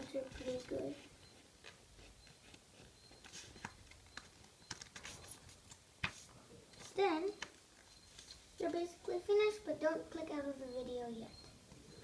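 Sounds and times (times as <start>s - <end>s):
paper crinkling and tapping: 1.6s - 8.8s.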